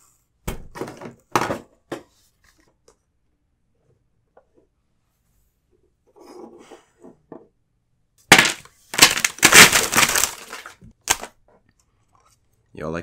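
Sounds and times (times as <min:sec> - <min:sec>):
cards crackling against microphone: 0:08.3 - 0:11.4.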